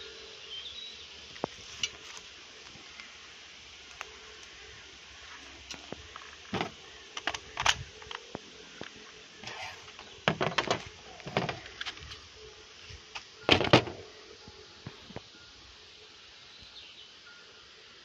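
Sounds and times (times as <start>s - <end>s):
replica rifle clicks and rattles: 6.2s - 8.3s.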